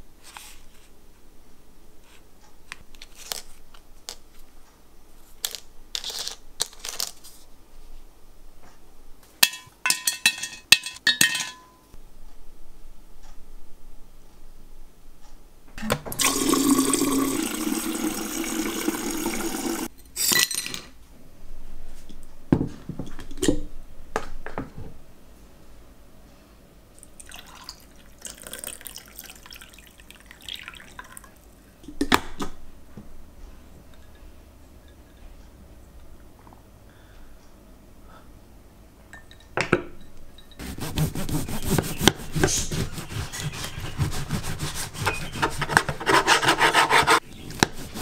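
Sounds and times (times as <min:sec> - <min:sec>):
sharp knocks and clinks: 0:09.4 - 0:12.0
liquid pouring into a glass: 0:16.2 - 0:19.9, 0:27.1 - 0:31.4.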